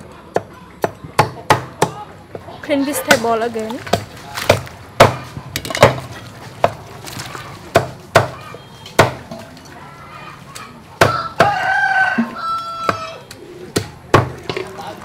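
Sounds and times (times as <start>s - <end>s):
cleaver chopping on wooden board: 9.0s - 9.2s
rooster crowing: 11.0s - 13.3s.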